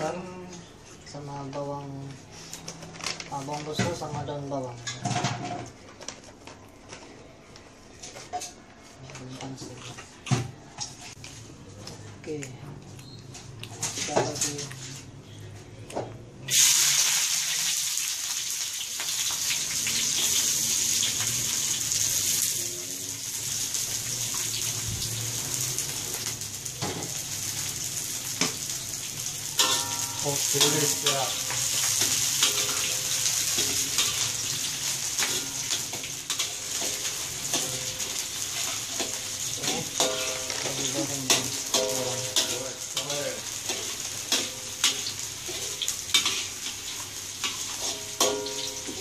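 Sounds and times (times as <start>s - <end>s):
onions sizzling in hot oil: 16.5s - 49.0s
spatula scraping a wok: 29.6s - 49.0s.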